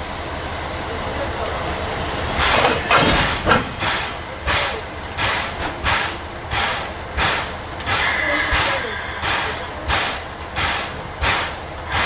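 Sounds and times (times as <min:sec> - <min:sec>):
air compressor hissing puffs: 0:05.2 - 0:12.0.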